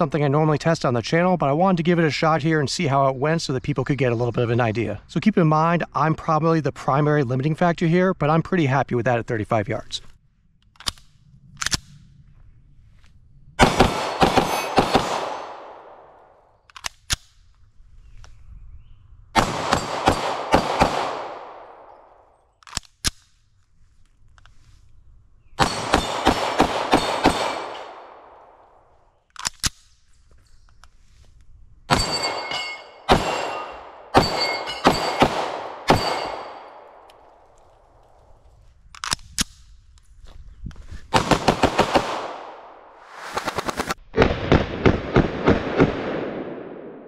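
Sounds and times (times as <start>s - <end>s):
pistol shots with echo: 13.6s - 16.4s, 19.4s - 22.3s, 25.6s - 28.8s, 31.9s - 37.4s, 41.1s - 43.0s.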